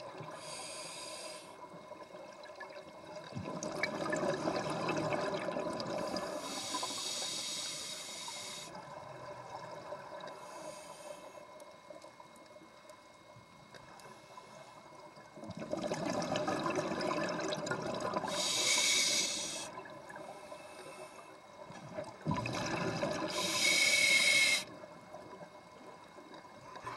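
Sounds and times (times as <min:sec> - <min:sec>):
regulator inhalation rush: 0:00.3 - 0:01.6, 0:05.9 - 0:08.8, 0:18.2 - 0:21.4, 0:23.0 - 0:24.8
exhaust bubbles hissing: 0:15.4 - 0:20.2, 0:21.9 - 0:25.4.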